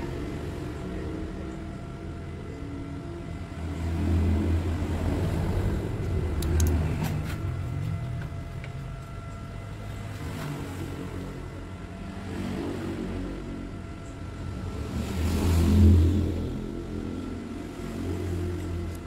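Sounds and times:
vehicle engine rumble: 0.0 - 19.0.

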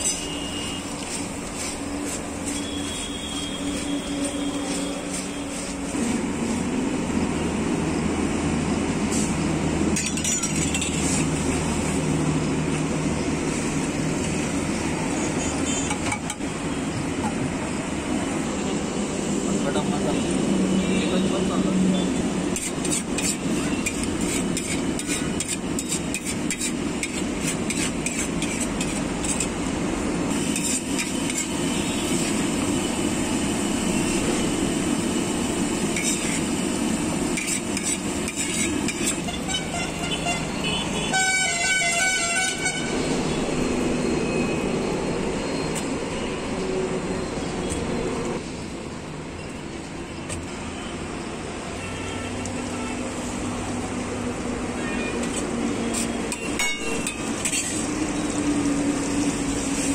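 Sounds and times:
metal spatula scraping griddle: 0.0 - 6.2, 9.9 - 12.0, 22.5 - 29.6, 30.3 - 32.4, 35.8 - 40.0, 55.9 - 58.0
outdoor background noise: 0.0 - 59.9
vehicle horn: 2.5 - 5.5, 39.1 - 43.0, 51.8 - 53.0.

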